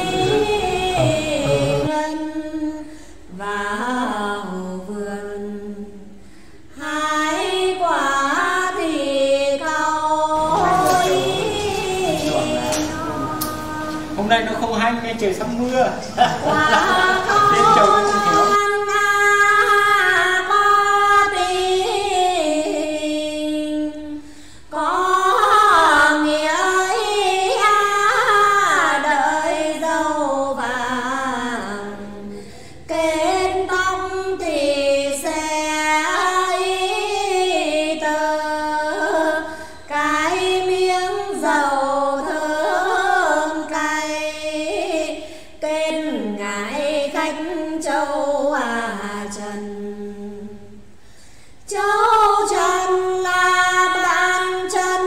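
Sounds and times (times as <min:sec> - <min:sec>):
two women singing: 0:00.0 - 0:14.2, 0:16.2 - 0:51.0, 0:51.6 - 0:55.0.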